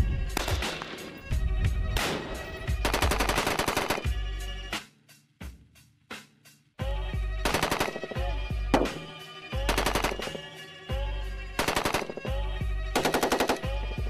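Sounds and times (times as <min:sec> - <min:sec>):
automatic rifle fire bursts: 0:02.8 - 0:04.1, 0:07.4 - 0:08.2, 0:09.7 - 0:10.5, 0:11.6 - 0:12.3, 0:13.0 - 0:13.8
music with heavy bass: 0:04.0 - 0:07.5, 0:08.1 - 0:13.0.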